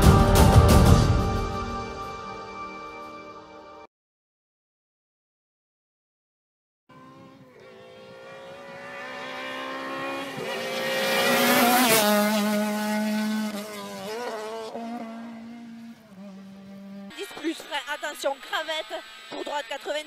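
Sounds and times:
rally car engine passing at speed: 6.9 - 17.2.

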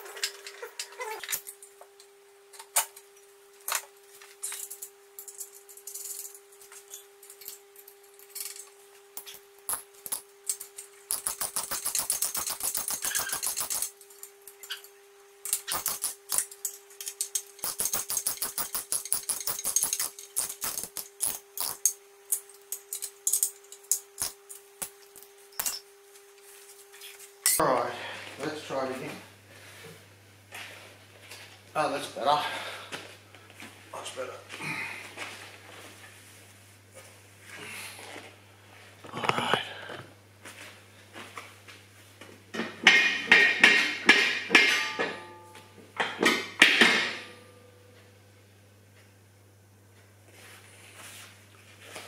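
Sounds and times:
faint steady hum: 0.0 - 52.0
rapid metallic clicking of hand tools: 9.2 - 14.0, 15.4 - 25.0.

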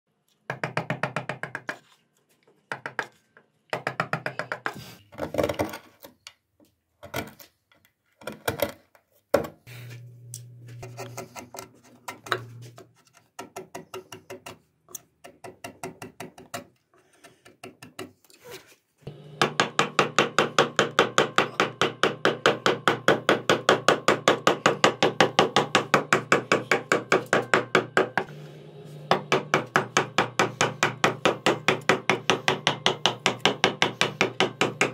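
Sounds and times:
mallet tapping carving gouge: 19.4 - 28.3, 29.1 - 34.9.

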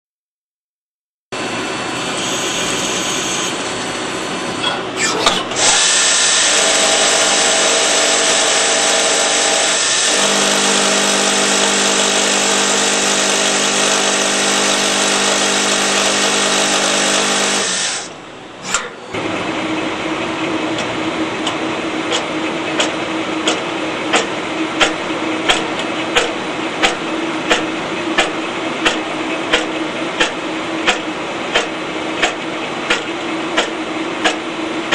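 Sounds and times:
lathe spindle whine: 1.4 - 4.6, 5.6 - 18.1
steady machine hum: 1.4 - 34.9
sharp cutter ticks: 26.2 - 33.0.

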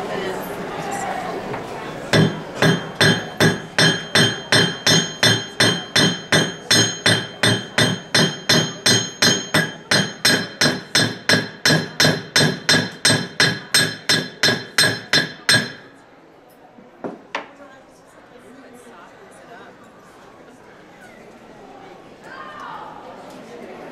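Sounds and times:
hammer clanging on metal: 2.1 - 15.9.

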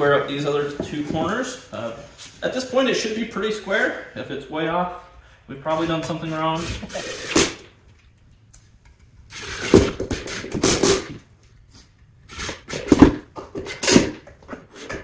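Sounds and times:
impact drill driving screws into wood: 6.7 - 7.7, 9.3 - 11.2, 12.3 - 14.3.

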